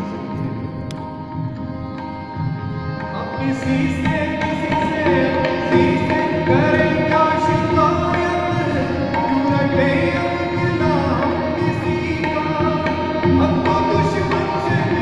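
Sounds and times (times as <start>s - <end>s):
harmonium tones: 0.0s - 15.0s
tabla rhythm: 0.0s - 15.0s
man singing devotional song: 3.0s - 15.0s.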